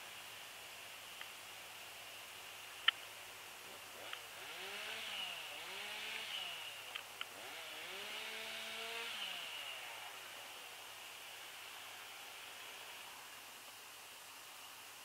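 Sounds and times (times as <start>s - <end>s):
distant chainsaw revving: 3.6s - 13.1s.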